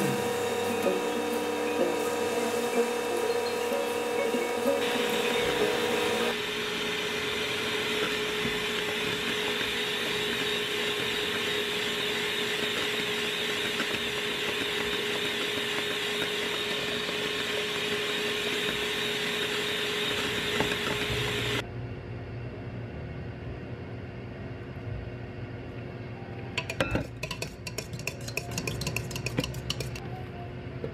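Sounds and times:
mixer motor whine: 0:00.0 - 0:21.7.

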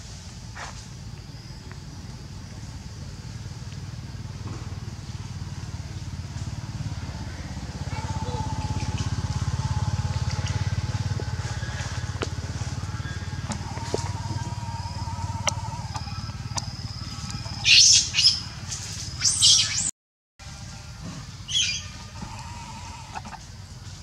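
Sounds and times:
engine running with rapid pulse: 0:01.8 - 0:19.3.

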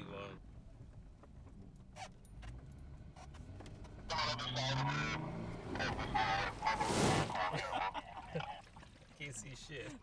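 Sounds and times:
off-road vehicle engine revving: 0:02.3 - 0:07.6.

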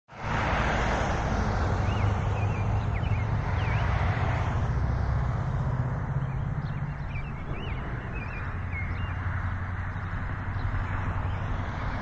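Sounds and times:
low outdoor rumble: 0:01.2 - 0:12.0
faint high bird chirps: 0:06.2 - 0:09.3.

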